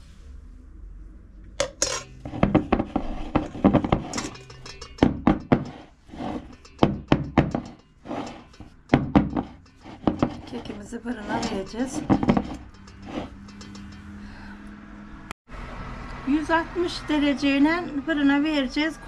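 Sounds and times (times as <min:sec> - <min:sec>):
utensils clinking against dishes: 0:01.6 - 0:14.2.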